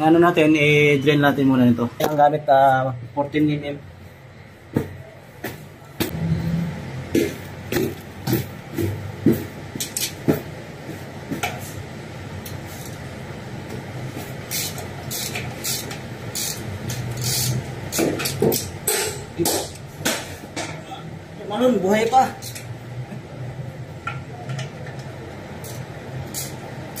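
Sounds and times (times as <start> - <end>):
ratchet clicking on metal: 14.5 - 19.1, 25.6 - 27.0.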